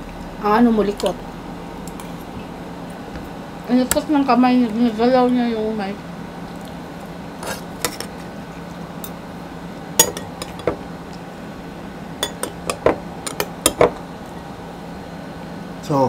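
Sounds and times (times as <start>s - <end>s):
metal spoon clinking on plates: 10.0s - 10.8s, 12.2s - 14.0s.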